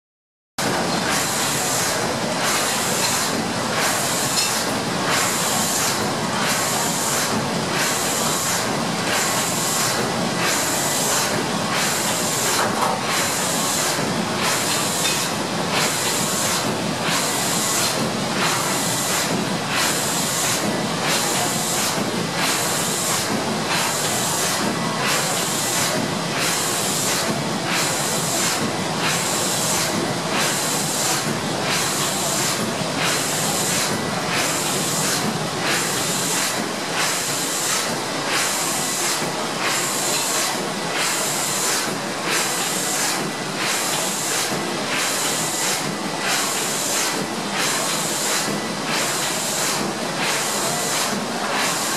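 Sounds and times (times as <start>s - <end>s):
steam engine hissing and clattering: 0.7s - 51.9s.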